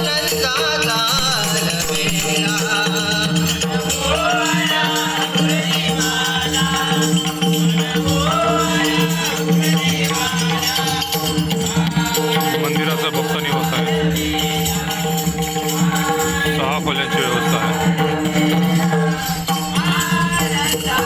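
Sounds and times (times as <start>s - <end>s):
shimmering percussion: 0.0s - 21.0s.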